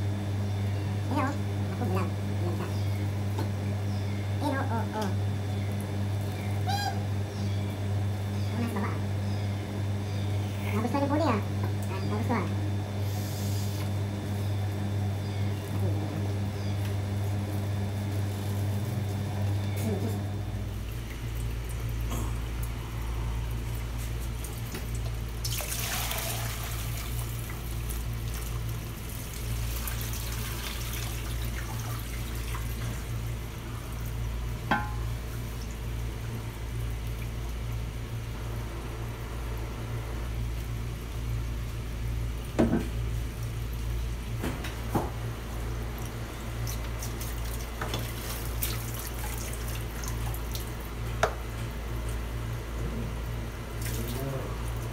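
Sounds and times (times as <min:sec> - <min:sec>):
tap water running: 0:16.8 - 0:54.9
poured water gush: 0:20.7 - 0:39.7, 0:45.4 - 0:52.6, 0:53.2 - 0:54.9
metal pots clanking: 0:34.7 - 0:35.1.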